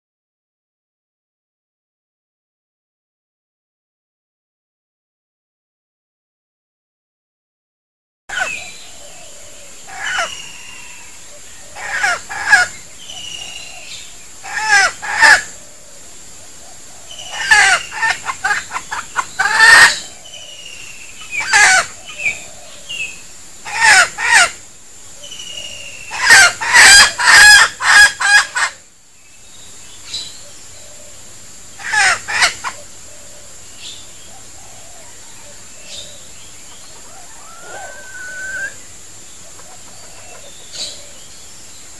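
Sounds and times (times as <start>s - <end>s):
rooster clucking and crowing: 17.2s - 20.1s, 26.1s - 28.8s, 34.4s - 41.2s.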